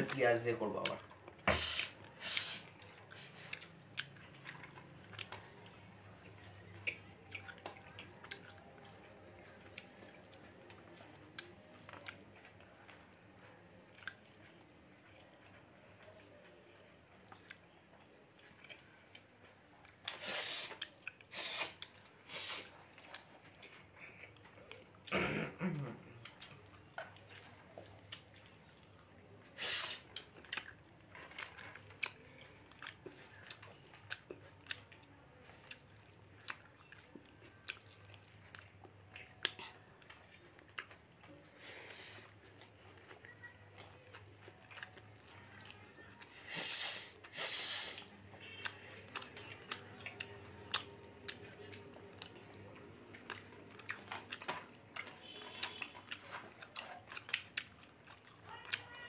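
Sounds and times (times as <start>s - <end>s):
person chewing food: 0.0s - 59.0s.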